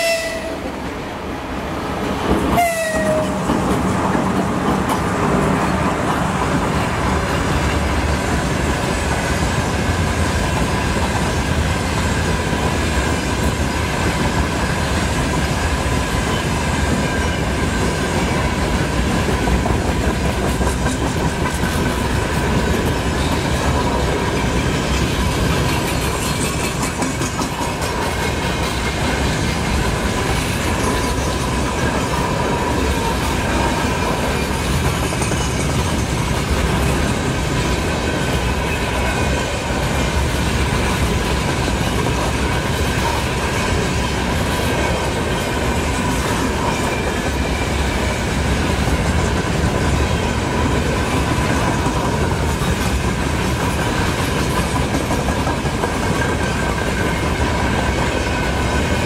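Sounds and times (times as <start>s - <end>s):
train horn: 0.0s - 0.8s, 2.5s - 3.5s
wheels clacking over rail joints: 2.2s - 8.8s, 9.5s - 59.0s.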